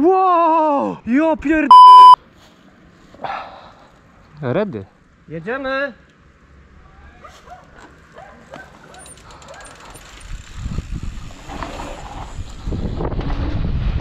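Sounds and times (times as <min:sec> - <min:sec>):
wind: 0:00.0 - 0:14.0
distant dog barking: 0:07.2 - 0:09.8
bike tyres rumbling on dirt: 0:09.7 - 0:14.0.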